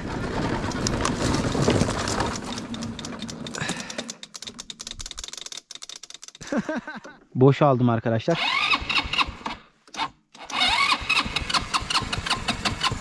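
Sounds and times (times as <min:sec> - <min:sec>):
electric starter cranking engine: 0:08.4 - 0:13.0.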